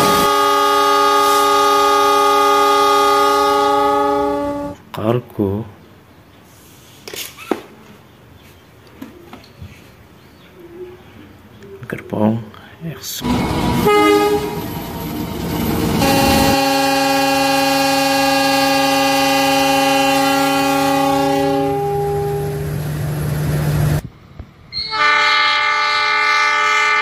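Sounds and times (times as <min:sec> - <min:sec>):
locomotive air horn: 0:00.0 - 0:04.8, 0:13.8 - 0:14.7, 0:15.9 - 0:22.7, 0:24.8 - 0:27.0
diesel train passing: 0:00.0 - 0:05.0, 0:13.0 - 0:27.0.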